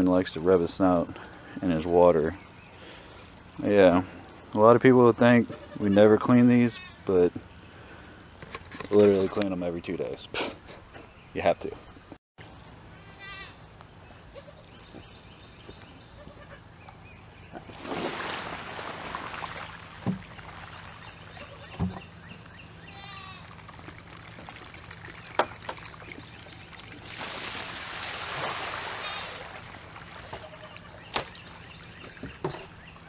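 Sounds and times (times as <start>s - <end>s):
livestock bleating: 13.1s - 13.6s, 16.2s - 16.6s, 21.4s - 21.8s, 22.9s - 23.5s, 30.4s - 31.0s
water splashing onto ground: 17.7s - 21.4s, 23.4s - 31.5s.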